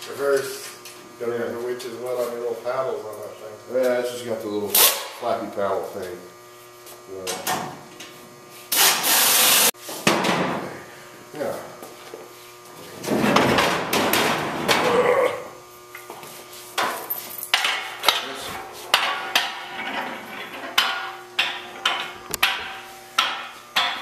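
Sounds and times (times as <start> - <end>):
sharp ringing metallic knocks: 20.7 - 24.0.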